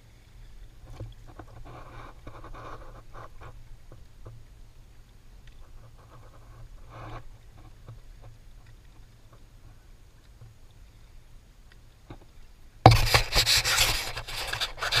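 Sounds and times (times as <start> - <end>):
rubbing and scraping on camera: 0.9 - 3.6, 5.6 - 8.3, 12.9 - 15.0.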